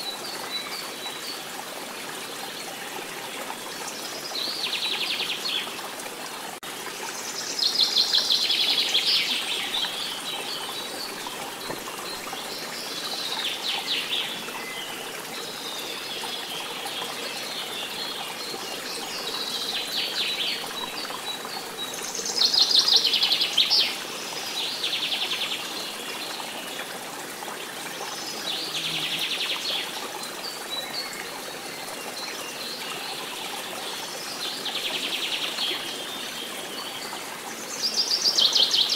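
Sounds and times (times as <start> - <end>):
stream flowing: 0.0 - 38.9
birds singing: 28.0 - 38.9.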